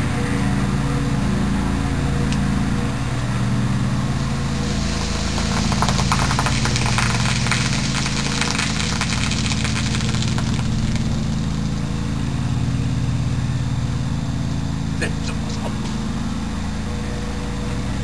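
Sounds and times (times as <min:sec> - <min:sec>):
steady motor drone: 0:00.0 - 0:18.0
soda fizzing and spraying: 0:04.5 - 0:11.8.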